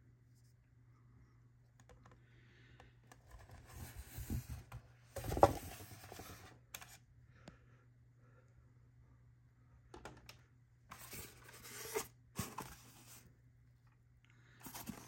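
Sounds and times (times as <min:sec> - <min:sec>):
styrofoam and tissue rustling: 0:10.9 - 0:13.2, 0:14.6 - 0:15.0.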